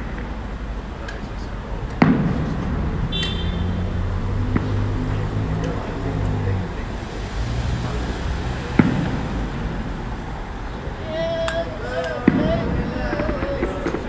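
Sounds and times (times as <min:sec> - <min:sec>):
passing vehicle engine: 0:00.0 - 0:14.0
road traffic hum: 0:00.0 - 0:14.0
loud firework bang: 0:02.0 - 0:03.7, 0:08.7 - 0:10.0, 0:12.2 - 0:14.0.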